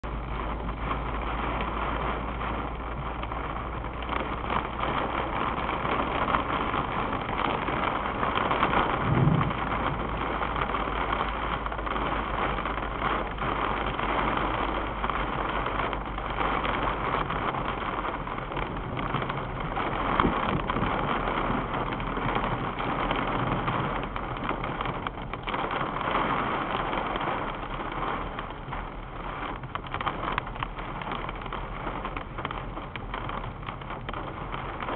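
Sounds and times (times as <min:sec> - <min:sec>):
engine and road hum: 0:00.0 - 0:34.9
heavy rain drumming on car roof: 0:00.0 - 0:34.9
loud thumps: 0:08.7 - 0:10.4.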